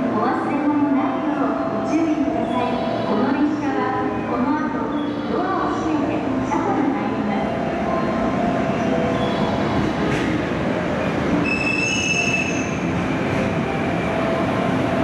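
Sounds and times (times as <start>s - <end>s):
train wheels rumbling on rails: 7.3s - 15.0s
high-pitched wheel squeal: 11.4s - 12.8s.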